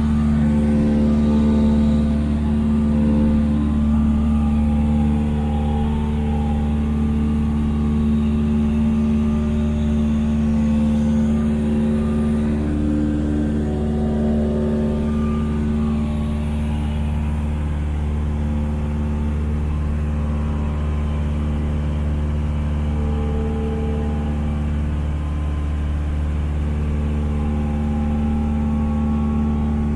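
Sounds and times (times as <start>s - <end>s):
propeller plane engine droning: 0.0s - 29.9s.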